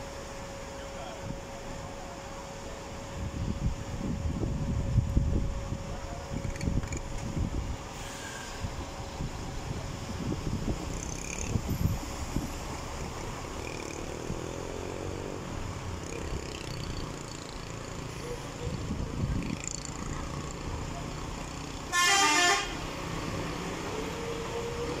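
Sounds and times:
road traffic rumbling: 0.0 - 25.0
car horn honk: 21.9 - 22.8.

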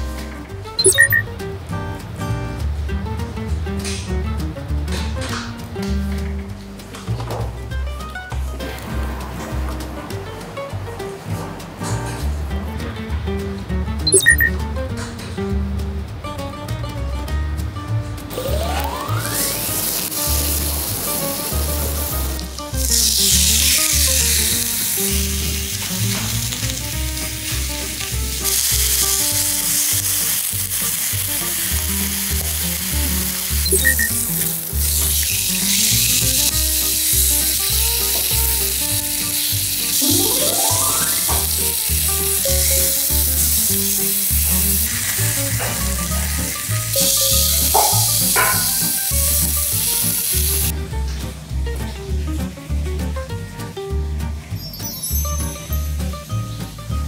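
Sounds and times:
meat sizzling on grill pan: 18.3 - 50.7.

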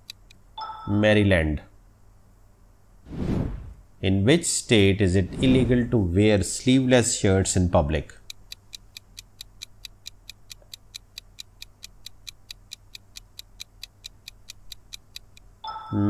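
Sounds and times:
clock-like timer ticks: 0.0 - 0.8, 8.2 - 16.0.

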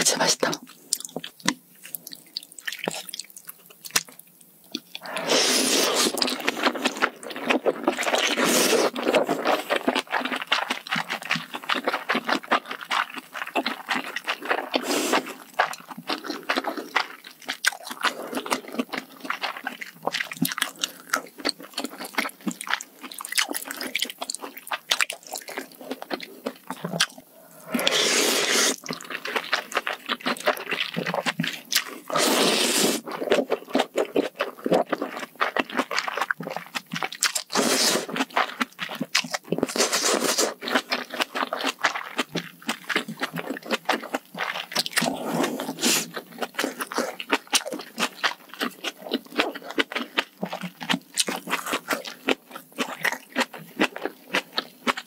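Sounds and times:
wet chewing and smacking: 0.4 - 55.0
slurping noodles and broth: 5.0 - 17.3, 26.4 - 35.6, 37.4 - 42.2, 42.9 - 47.9.

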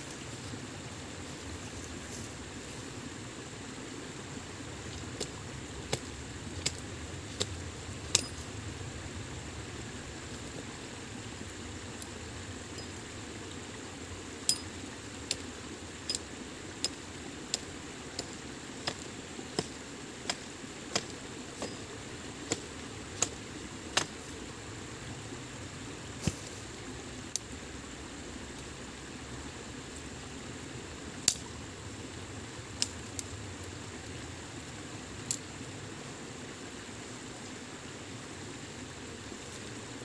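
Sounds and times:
sharp ringing knocks: 8.1 - 8.4.

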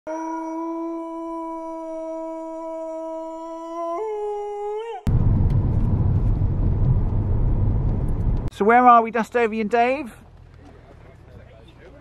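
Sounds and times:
car road rumble: 5.1 - 8.5, 10.0 - 12.0.

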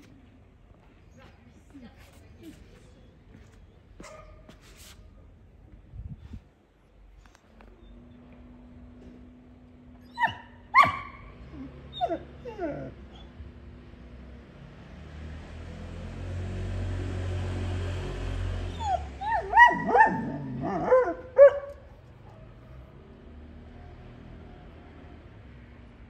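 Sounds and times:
dogs whining and yelping: 10.0 - 13.4, 18.7 - 21.8
young dogs barking: 10.2 - 11.4, 18.8 - 22.8.

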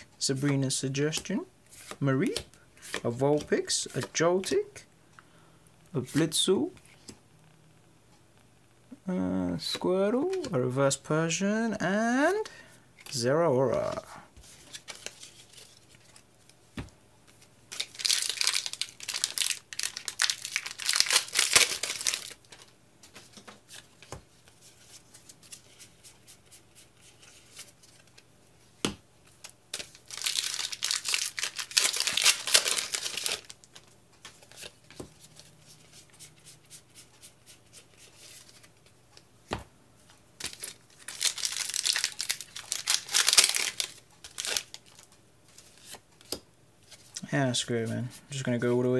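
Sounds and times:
foil wrappers tearing and crinkling: 17.7 - 22.4, 29.8 - 33.6, 40.4 - 45.0.

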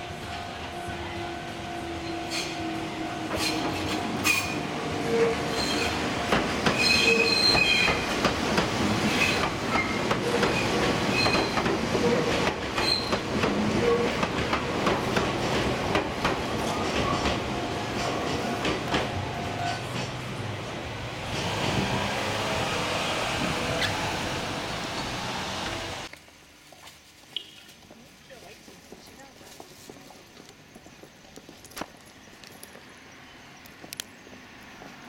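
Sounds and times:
train wheels squealing on rails: 2.0 - 8.2, 9.0 - 14.2, 16.6 - 20.2, 23.5 - 25.3
wheels clacking over rail joints: 3.2 - 20.5.

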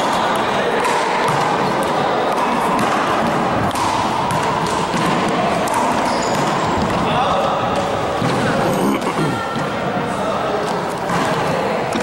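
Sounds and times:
background din of voices: 0.0 - 12.0.

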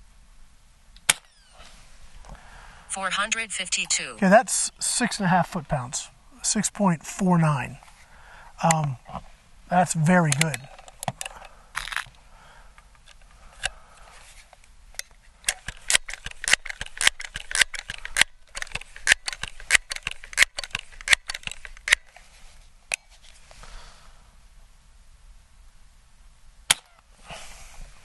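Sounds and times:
air pistol pump clicking: 15.0 - 22.2.

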